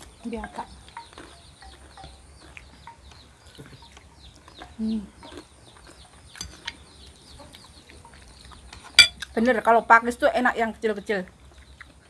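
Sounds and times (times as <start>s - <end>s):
chicks peeping: 0.0s - 9.6s.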